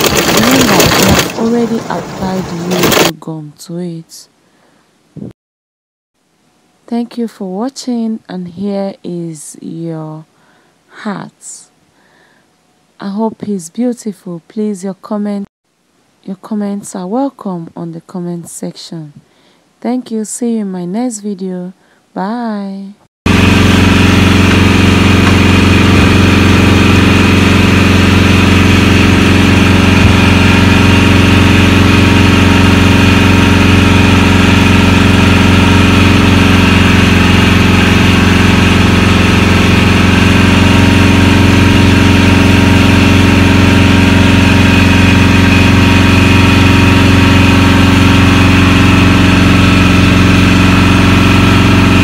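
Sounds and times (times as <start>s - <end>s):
machine hum: 0.0s - 3.2s, 23.3s - 52.0s.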